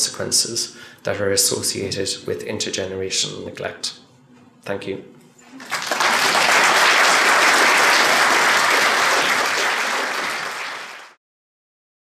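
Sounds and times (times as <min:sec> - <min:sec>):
audience applauding: 0:05.6 - 0:11.2.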